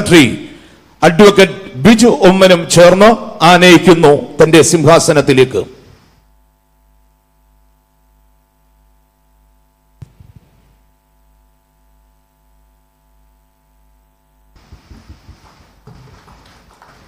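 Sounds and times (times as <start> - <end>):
electrical mains hum: 0.0 - 17.0
rustling: 14.6 - 17.0.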